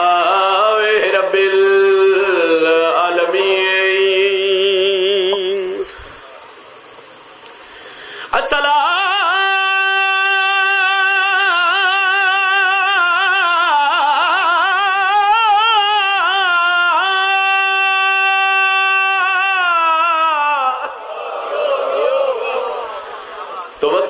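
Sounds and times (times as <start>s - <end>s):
man singing wordless lament: 0.0s - 6.0s, 8.3s - 21.0s.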